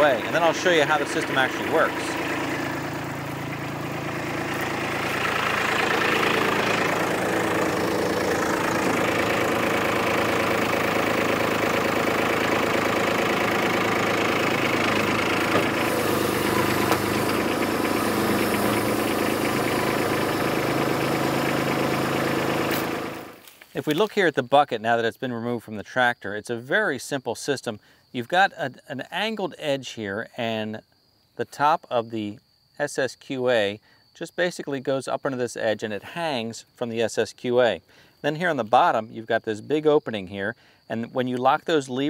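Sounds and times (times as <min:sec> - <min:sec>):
tractor diesel engine running: 0:00.0 - 0:23.4.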